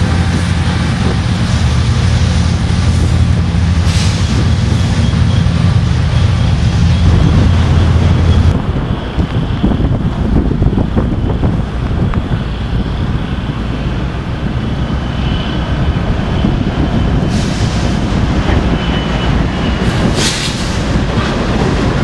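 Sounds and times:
diesel locomotives rumbling past: 0.0s - 22.0s.

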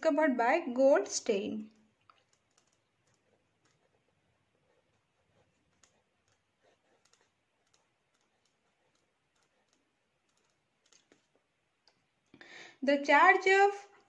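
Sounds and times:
pen writing on paper: 2.2s - 11.4s.

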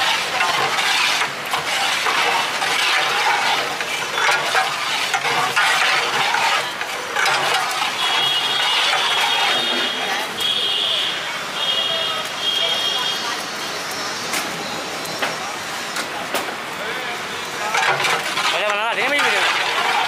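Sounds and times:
metal ladle scraping a pot: 0.0s - 10.2s, 17.6s - 20.0s.

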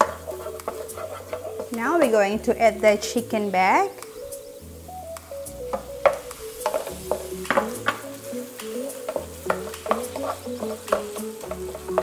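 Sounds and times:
wooden spatula scraping a wok: 0.0s - 3.4s, 5.5s - 12.0s
light sizzle: 0.0s - 12.0s.

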